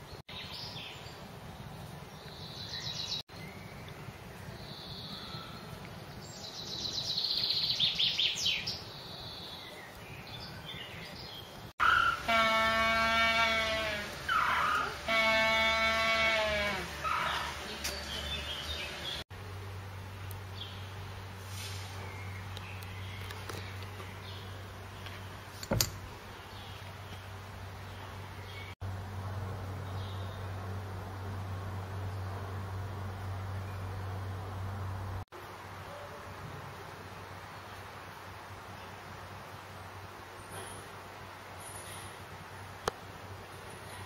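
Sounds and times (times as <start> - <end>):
animal bleating: 11.8 - 17.5.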